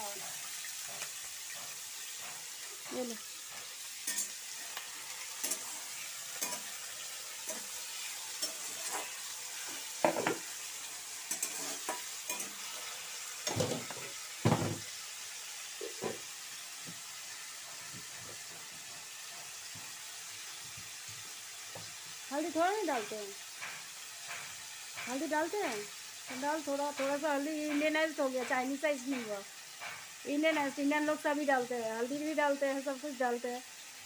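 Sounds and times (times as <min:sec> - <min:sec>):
potato sticks sizzling in oil: 0:00.0 - 0:34.0
spatula scraping and knocking wok: 0:00.3 - 0:14.9, 0:16.9 - 0:30.7.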